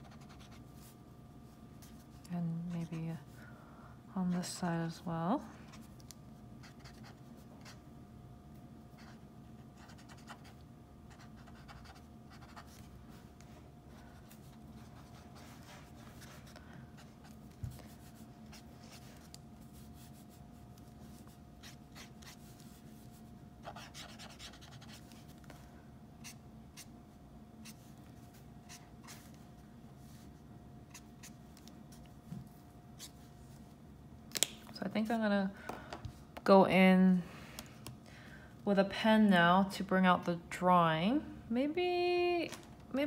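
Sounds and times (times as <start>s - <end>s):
marker scratching on paper: 0.0s - 0.6s, 9.8s - 12.9s, 23.6s - 25.2s
faint steady hum: 0.0s - 43.0s.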